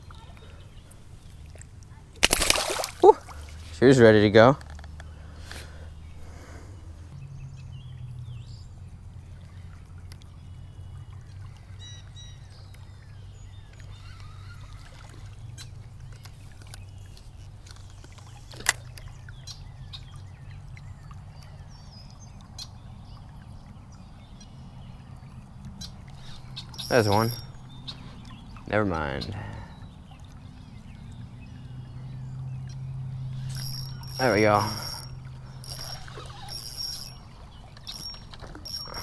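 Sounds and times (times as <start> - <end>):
creek water flowing: 0.0 - 7.9, 8.7 - 39.0
faint bird chirps: 24.0 - 39.0.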